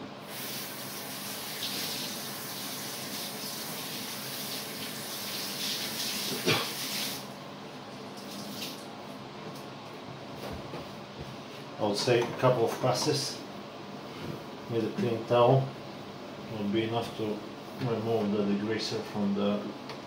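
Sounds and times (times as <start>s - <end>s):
water running from a tap: 0.3s - 7.3s, 8.2s - 8.9s.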